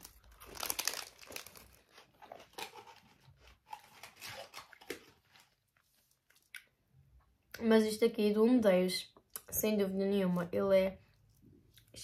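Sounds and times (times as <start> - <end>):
biscuit crunching while chewing: 0.0 - 6.8.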